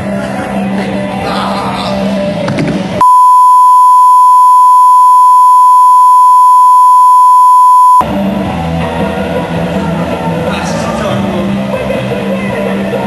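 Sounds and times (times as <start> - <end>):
sine test tone: 3.0 - 8.0.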